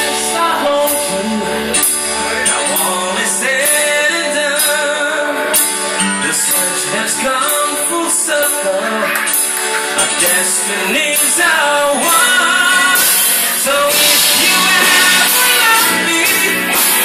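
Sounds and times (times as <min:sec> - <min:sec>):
electric guitar: 0:00.0 - 0:17.0
man singing into a microphone: 0:00.0 - 0:17.0
drums with cymbals: 0:11.2 - 0:17.0.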